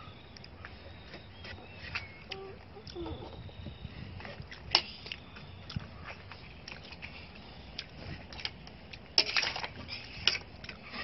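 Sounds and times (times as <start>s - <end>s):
chewing: 4.2s - 9.1s.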